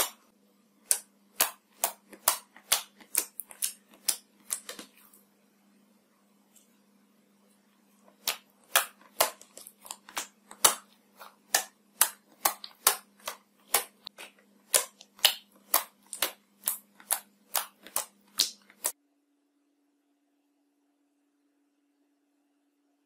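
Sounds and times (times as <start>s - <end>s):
slime popping: 8.1s - 19.0s.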